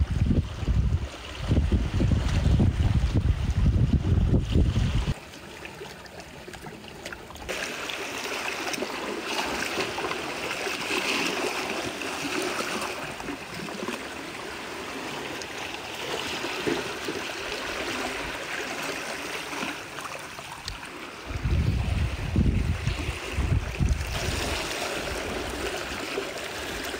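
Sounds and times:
wind buffeting microphone: 0:00.0 - 0:05.2, 0:21.2 - 0:26.0.

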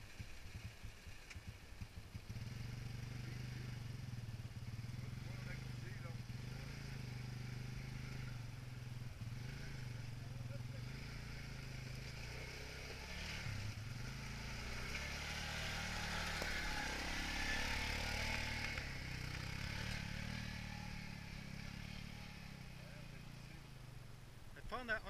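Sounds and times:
quad bike engine under load: 0:00.0 - 0:24.2.

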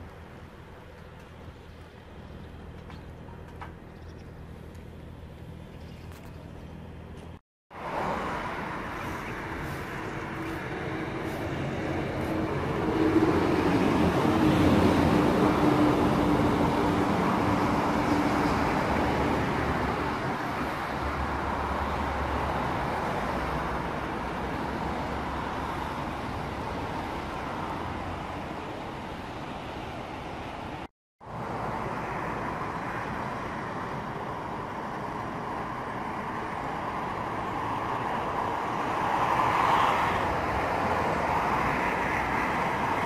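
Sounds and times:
passing vehicle engine: 0:07.7 - 0:29.0.

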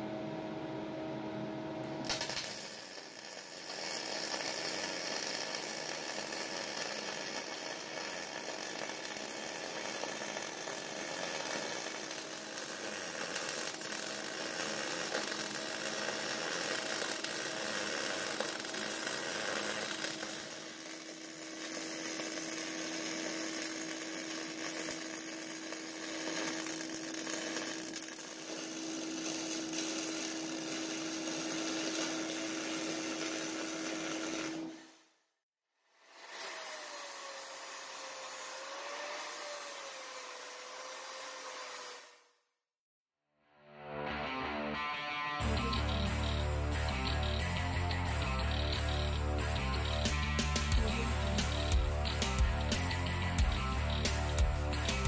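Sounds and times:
arc welding hiss: 0:02.1 - 0:34.8.

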